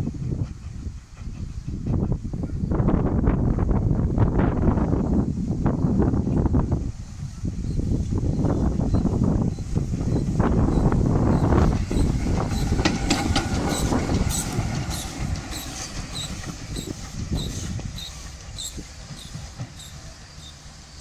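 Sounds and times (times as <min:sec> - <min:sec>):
steam locomotive rumble: 0:00.0 - 0:21.0
wheels clicking on rails: 0:07.8 - 0:21.0.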